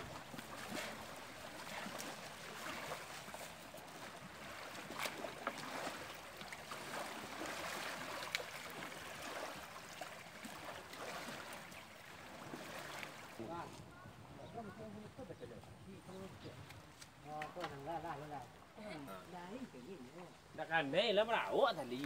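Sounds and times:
lake waves lapping at shore: 0:00.0 - 0:22.0
sharp knocks or splashes: 0:04.4 - 0:09.6.

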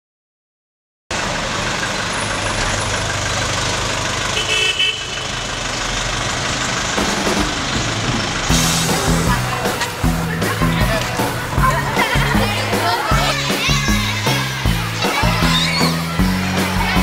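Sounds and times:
traffic engine rumble: 0:01.1 - 0:17.0
car horn: 0:04.3 - 0:05.4.

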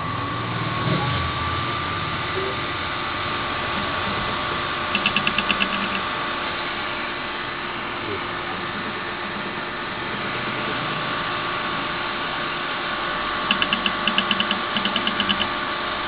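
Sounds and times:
quick even ticks: 0:05.0 - 0:06.0, 0:13.5 - 0:15.5.

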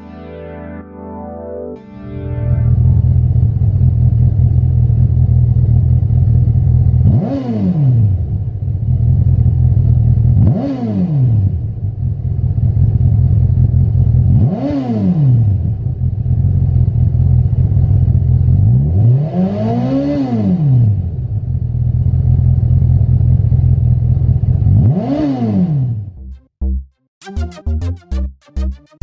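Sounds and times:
motorcycle engine idling: 0:02.8 - 0:07.0, 0:11.7 - 0:14.3, 0:15.8 - 0:18.6, 0:21.3 - 0:24.7
motorcycle engine revving: 0:02.8 - 0:26.2.

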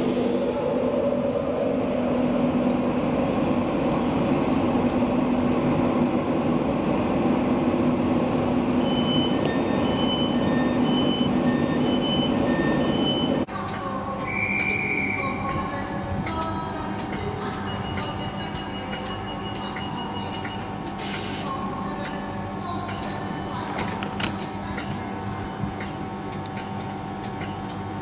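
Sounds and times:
train running past platform: 0:00.0 - 0:28.0
two-tone beeping: 0:08.8 - 0:13.4.

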